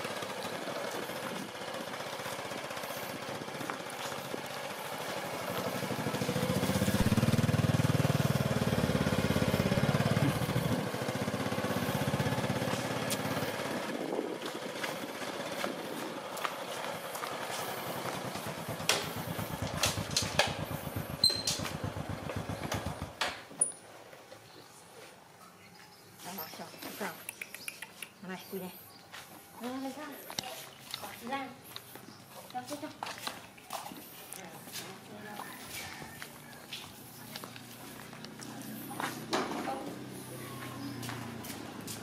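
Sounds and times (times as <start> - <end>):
motorbike engine running: 0.0 - 23.2
sharp clicks: 27.2 - 28.2.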